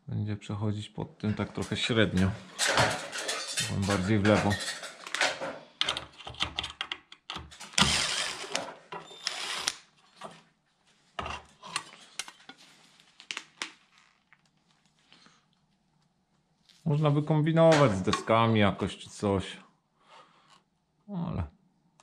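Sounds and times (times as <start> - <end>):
tools rattling and scraping on wood: 1.3 - 6.8, 7.4 - 10.4, 11.2 - 12.6, 17.6 - 18.6.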